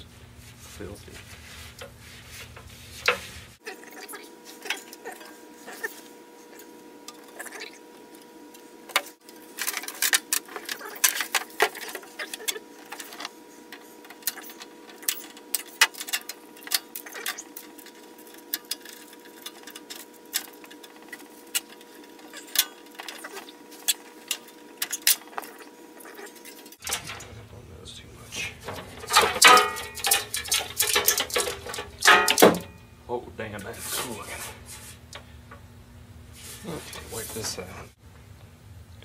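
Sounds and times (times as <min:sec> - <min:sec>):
faint steady hum: 0:00.0 - 0:39.0
hands rattling plastic and metal parts: 0:28.6 - 0:32.6.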